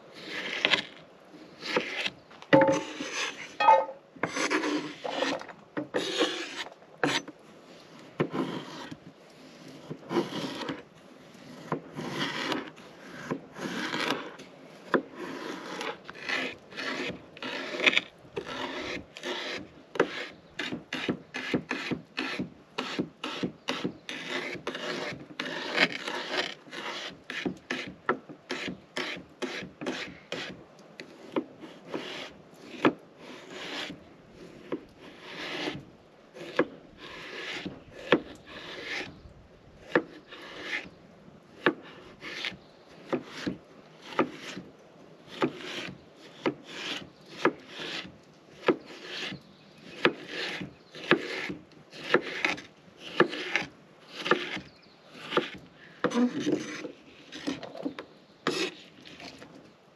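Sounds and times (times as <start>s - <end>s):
knife cutting on wooden board: 1.6s - 7.3s, 11.5s - 27.9s, 45.3s - 59.3s.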